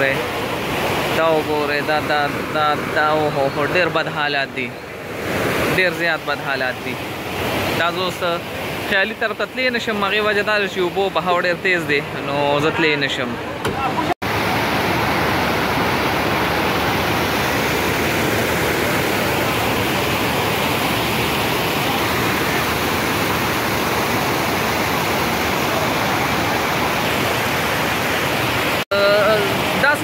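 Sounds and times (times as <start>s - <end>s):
floodwater rushing: 0.0s - 30.0s.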